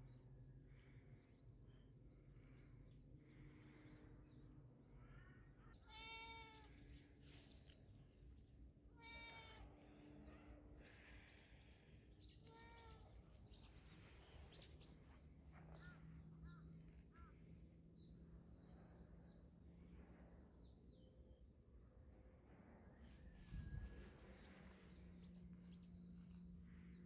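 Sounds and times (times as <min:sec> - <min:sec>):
cat meowing: 0:05.9 - 0:06.7.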